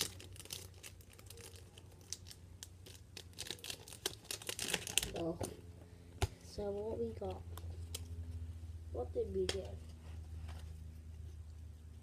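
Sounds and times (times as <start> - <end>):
foil wrappers crinkling: 0.0 - 5.6.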